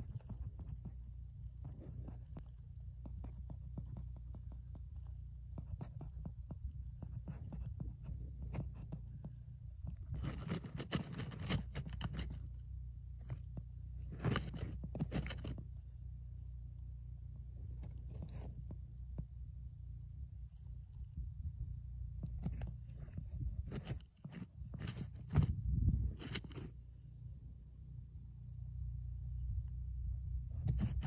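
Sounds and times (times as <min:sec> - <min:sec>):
marmot scraping earth and grass: 0:00.0 - 0:15.9, 0:17.4 - 0:19.2, 0:22.0 - 0:26.9, 0:30.4 - 0:31.0
steady low hum: 0:00.0 - 0:31.0.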